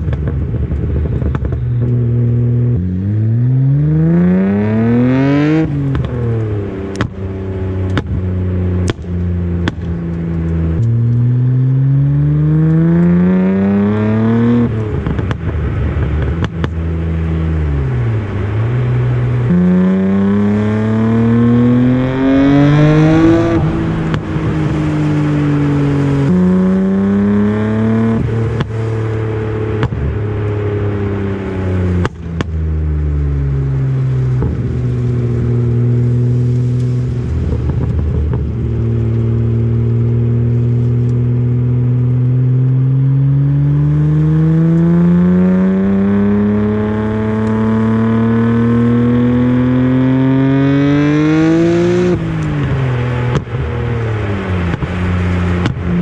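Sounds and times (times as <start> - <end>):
car engine revving hard: 2.5 - 6.0, 19.2 - 28.7, 43.2 - 53.5.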